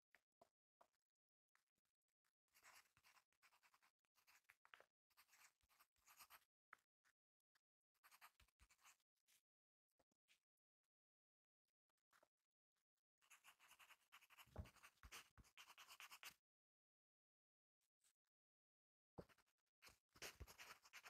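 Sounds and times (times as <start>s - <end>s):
pencil scratching on paper: 2.5s - 6.5s, 8.0s - 9.4s, 13.2s - 16.4s, 19.2s - 21.0s.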